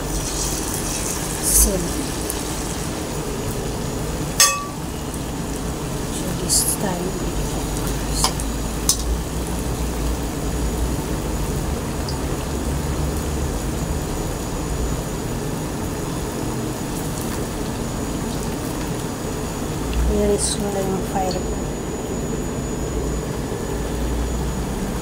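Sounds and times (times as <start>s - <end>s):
oil sizzling: 0.0s - 22.4s
metal spatula clinking on wok: 4.4s - 4.9s.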